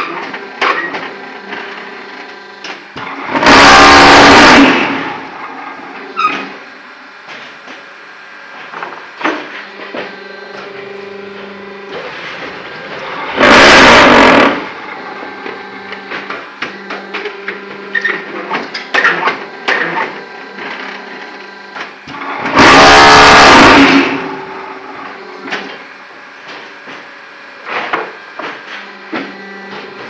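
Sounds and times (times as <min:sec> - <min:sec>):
machine motor humming: 0:00.2 - 0:30.0
loud buzzing rattle: 0:03.0 - 0:06.6, 0:12.0 - 0:16.9, 0:22.0 - 0:25.1.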